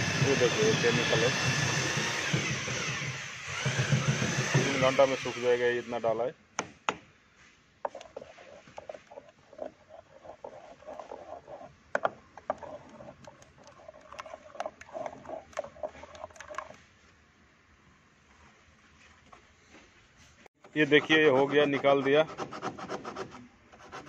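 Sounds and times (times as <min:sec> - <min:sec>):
stick stirring in plastic tub: 0:07.8 - 0:16.8.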